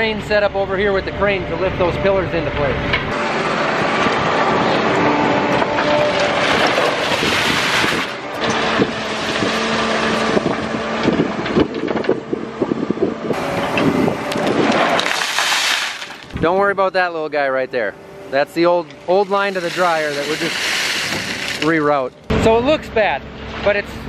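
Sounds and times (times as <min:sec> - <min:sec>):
excavator diesel engine and hydraulics: 0:00.0 - 0:24.0
rocks clattering against steel: 0:05.5 - 0:09.8, 0:14.3 - 0:16.4, 0:19.3 - 0:22.1.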